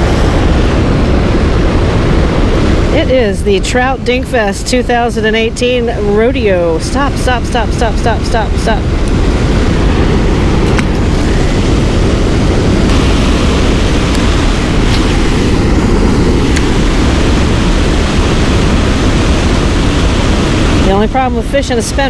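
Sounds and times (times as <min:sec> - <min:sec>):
waterfall rushing: 0:00.0 - 0:04.2, 0:05.1 - 0:22.0.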